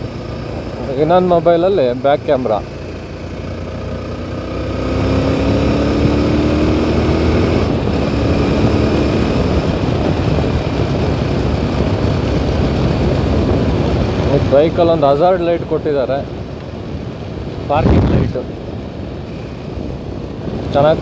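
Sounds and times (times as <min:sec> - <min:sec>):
motorcycle engine accelerating: 0:00.0 - 0:18.6
wind noise: 0:04.3 - 0:21.0.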